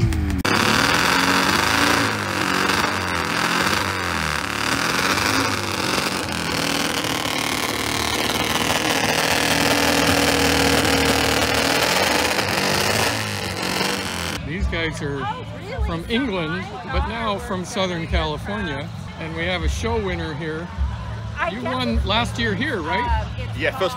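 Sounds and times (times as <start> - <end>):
motorcycle engine revving: 0.0 - 14.4.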